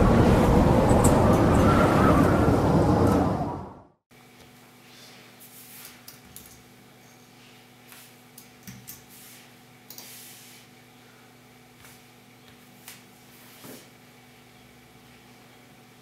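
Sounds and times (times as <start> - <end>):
faint steady room hum: 4.1 - 16.0.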